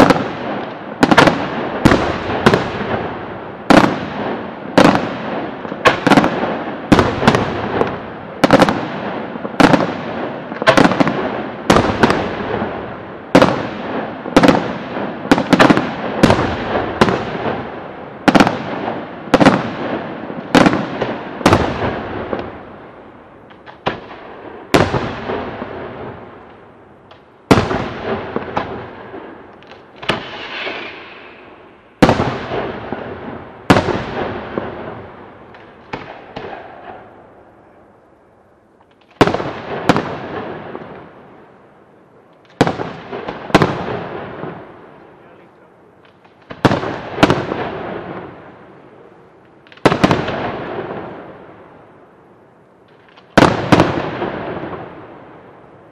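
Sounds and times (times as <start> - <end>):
firework crackle: 0.0 - 37.8, 42.3 - 52.2, 52.8 - 55.9
firework shells bursting: 29.5 - 32.8.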